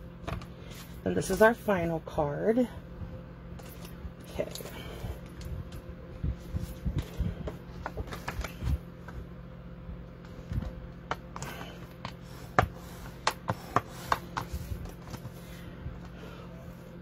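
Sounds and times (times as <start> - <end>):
faint steady hum: 0.0 - 17.0
paper rustling: 7.8 - 8.8.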